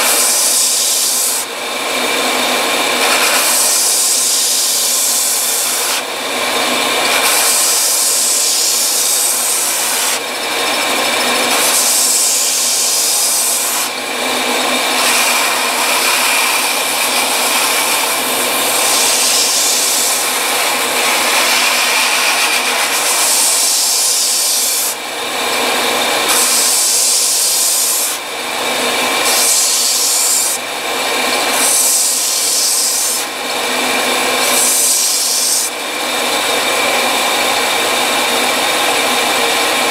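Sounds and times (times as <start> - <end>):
belt sander whining: 0.0 - 39.9
rubber rasping against sanding belt: 3.0 - 6.1, 7.0 - 10.2, 11.2 - 14.0, 14.8 - 25.0.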